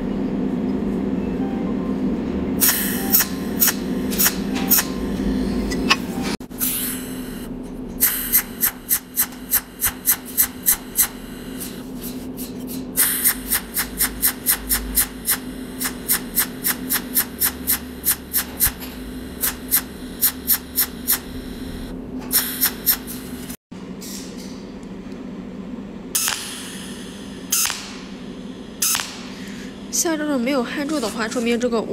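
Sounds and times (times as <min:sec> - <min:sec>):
steady low hum: 0:00.0 - 0:31.9
welding machine snapping: 0:02.6 - 0:05.0, 0:06.6 - 0:24.4, 0:26.2 - 0:28.2, 0:28.8 - 0:29.7.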